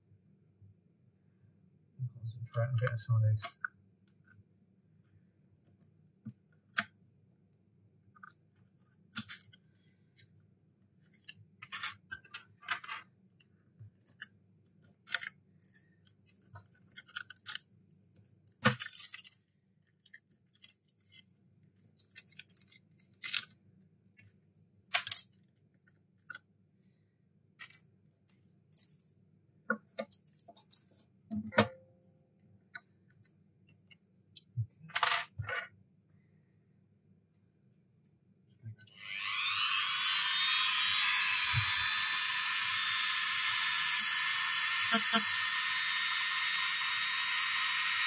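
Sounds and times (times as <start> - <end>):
faint low hum: 0.0 - 6.7.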